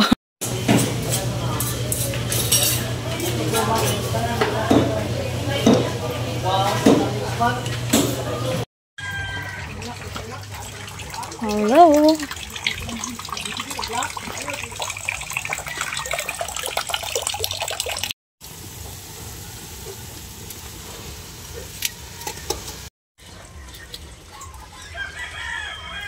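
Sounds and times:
meat sizzling in a wok: 18.4 - 22.9.

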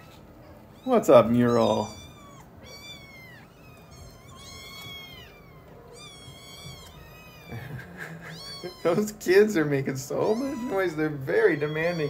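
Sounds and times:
kittens meowing: 0.0 - 12.0.

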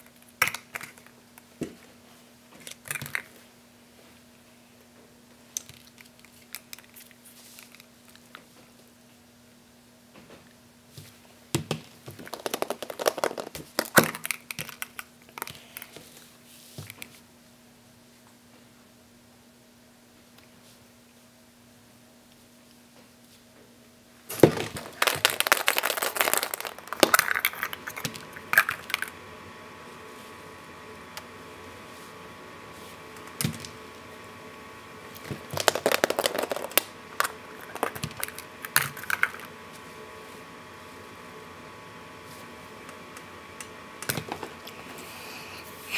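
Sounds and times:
plastic eggs clicking and clattering: 12.1 - 15.4, 24.5 - 29.1, 35.5 - 39.5.

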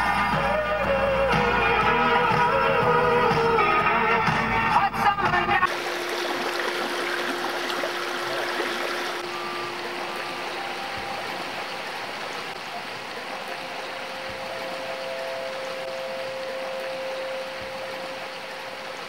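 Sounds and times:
river flowing over rocks: 5.6 - 19.0.

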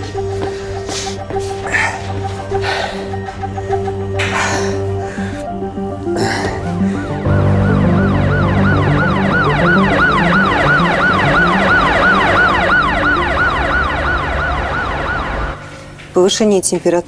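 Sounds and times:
low background music: 0.0 - 17.0
ambulance siren yelping: 6.9 - 15.6.

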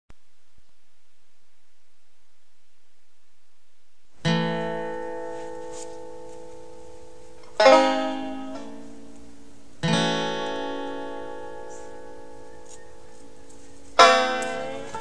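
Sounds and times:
plucked string chords: 4.2 - 15.0.

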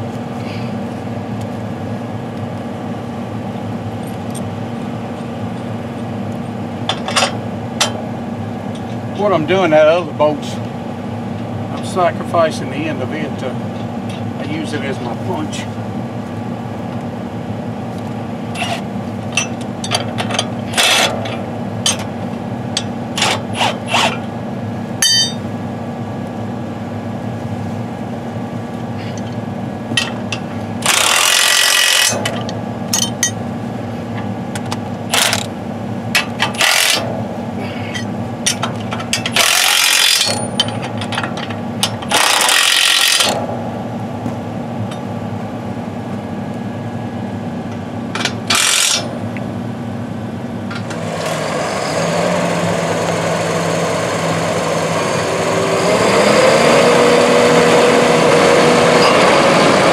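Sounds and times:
metal tools clinking on steel: 18.6 - 22.1, 25.0 - 25.4, 30.0 - 33.4, 37.8 - 43.3
impact wrench bursts: 30.8 - 32.3, 36.4 - 37.1, 39.2 - 40.6, 42.0 - 43.4, 48.5 - 49.1.

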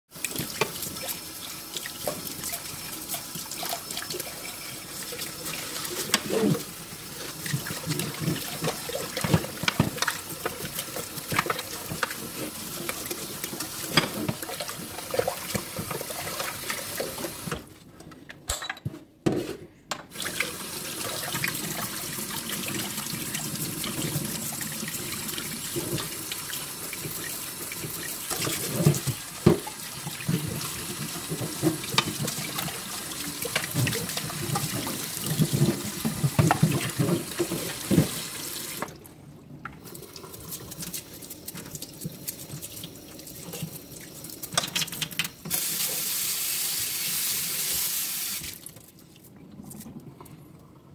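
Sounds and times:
tap water running into bowl: 0.1 - 17.6, 20.1 - 39.0
dish brush scrubbing: 0.2 - 17.6, 20.2 - 38.8.

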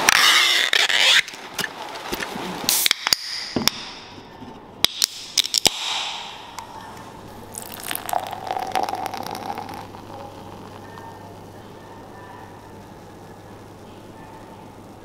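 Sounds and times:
soda can opening with hiss: 2.7 - 3.4
drink poured into glass: 7.4 - 11.3.

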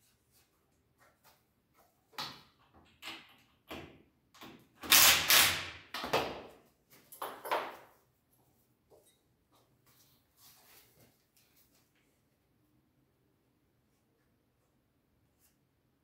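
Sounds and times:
cordless drill-driver: 4.8 - 5.7.

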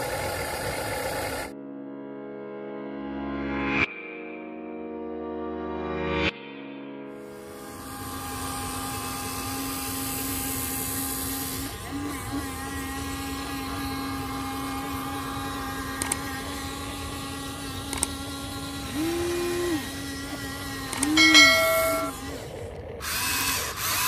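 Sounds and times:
electric gear motors whining: 0.0 - 1.5, 7.5 - 24.0.

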